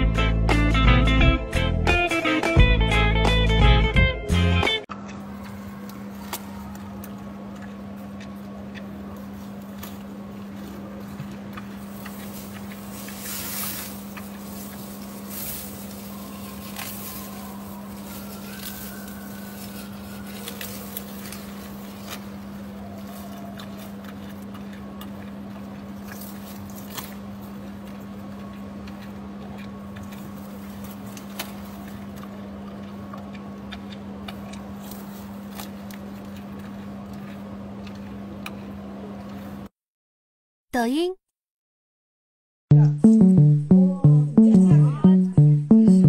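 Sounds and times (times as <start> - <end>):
low steady hum: 2.8 - 39.7, 42.7 - 46.0
panda chewing bamboo: 5.1 - 39.5.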